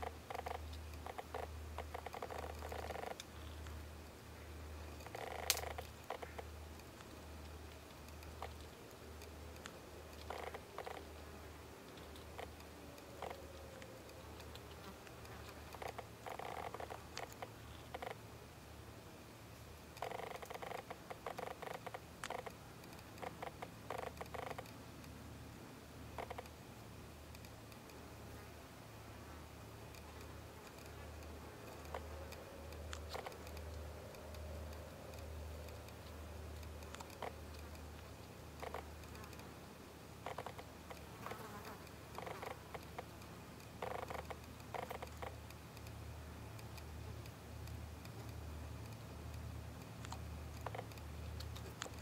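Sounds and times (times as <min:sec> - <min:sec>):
low steady hum: 0:00.0 - 0:52.0
flying insects buzzing: 0:40.2 - 0:43.0.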